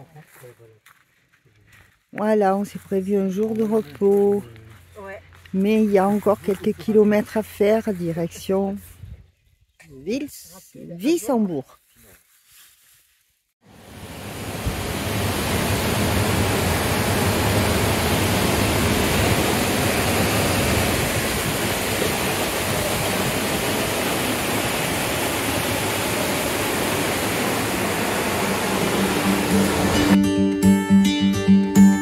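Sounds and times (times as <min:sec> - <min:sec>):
water rushing over a weir: 0:13.8 - 0:30.2.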